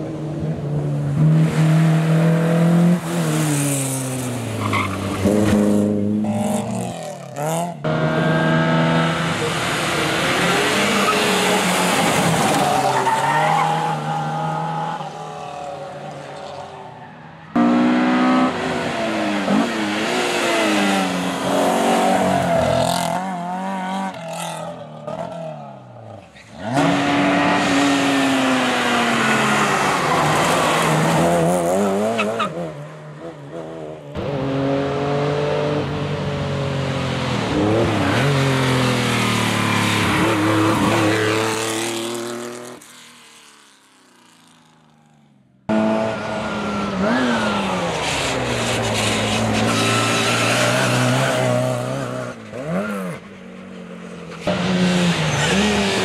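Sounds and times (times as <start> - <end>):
rally car engines revving past: 0.0 - 44.6, 45.7 - 56.0
tyre squeal: 48.0 - 51.6.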